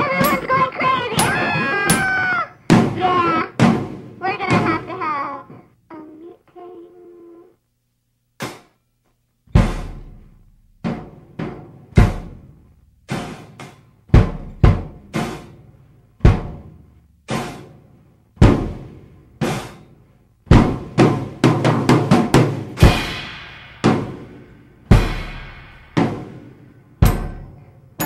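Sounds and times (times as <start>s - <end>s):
drum kit hits: 0.0s - 4.9s, 8.4s - 8.8s, 9.5s - 28.0s.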